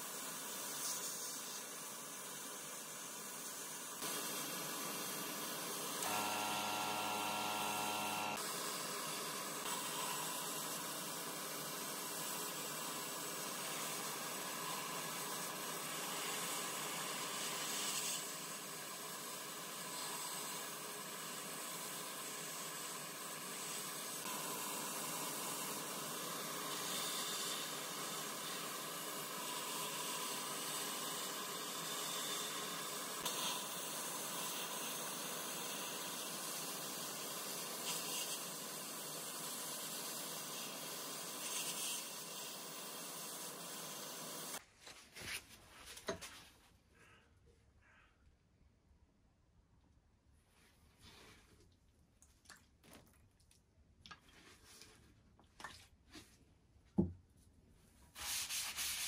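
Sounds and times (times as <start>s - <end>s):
sandblaster hissing: 0.0s - 44.6s.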